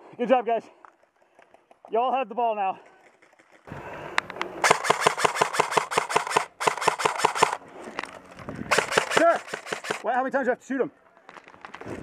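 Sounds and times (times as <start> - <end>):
airsoft gun rapid firing: 4.6 - 7.6, 8.7 - 10.1.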